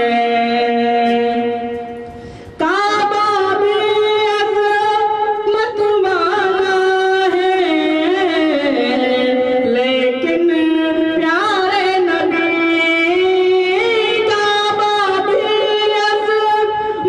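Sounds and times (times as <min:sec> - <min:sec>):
man singing into a microphone: 0:02.6 - 0:17.0.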